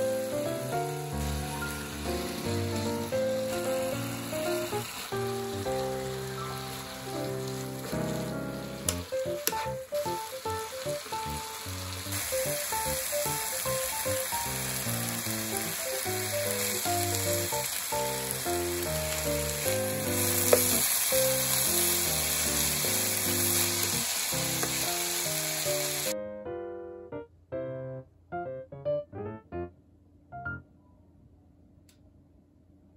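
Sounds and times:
vegetables sizzling in hot oil: 0:00.0 - 0:26.2
light keyboard music: 0:00.0 - 0:31.0.

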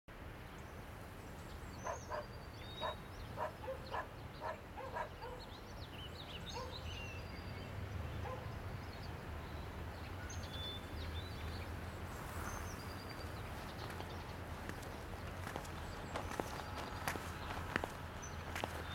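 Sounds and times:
small birds chirping: 0:00.4 - 0:18.9
dog barking: 0:01.8 - 0:05.5, 0:06.5 - 0:06.8, 0:08.2 - 0:08.6.

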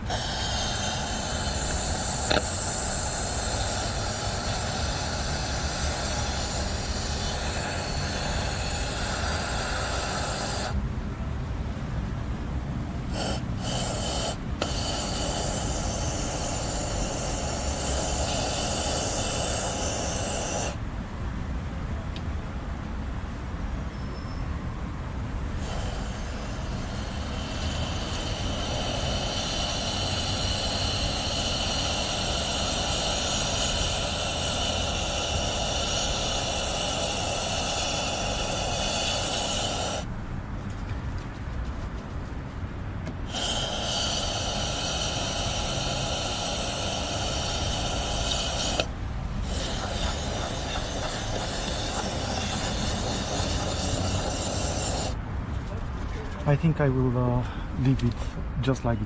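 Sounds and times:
aerosol can spraying: 0:00.0 - 0:10.8, 0:13.1 - 0:20.8, 0:25.6 - 0:40.1, 0:43.2 - 0:55.2.

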